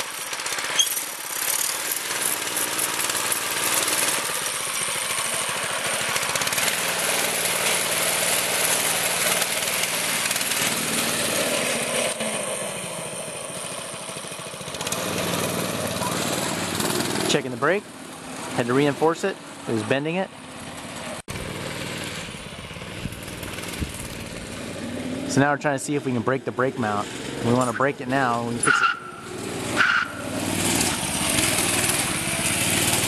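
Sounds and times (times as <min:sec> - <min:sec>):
go-kart engine putter: 0:00.0 - 0:12.5, 0:13.6 - 0:19.0, 0:26.7 - 0:33.0.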